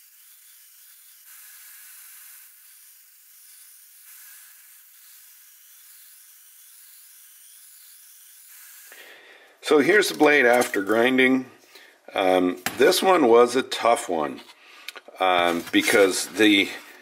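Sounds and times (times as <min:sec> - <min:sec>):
belt grinder grinding knife blade: 0:00.0 - 0:09.0.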